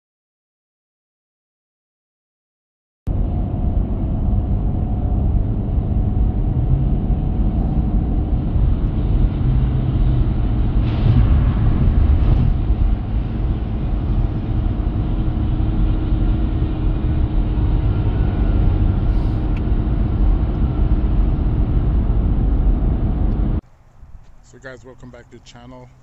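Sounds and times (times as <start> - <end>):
vehicle engine rumble: 3.1 - 26.0
short hissing swells: 19.1 - 19.6.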